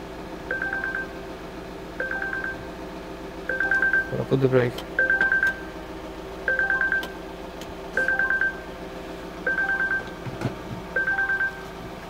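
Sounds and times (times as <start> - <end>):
car warning chime beeps: 0.5 - 1.3, 2.0 - 2.8, 3.5 - 5.8, 6.4 - 7.3, 8.0 - 8.8, 9.4 - 10.2, 10.9 - 11.8.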